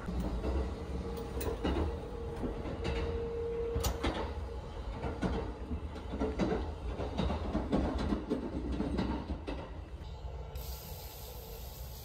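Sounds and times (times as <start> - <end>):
train cabin rumble: 0.0 - 10.5
knocks and rattles: 4.0 - 9.8.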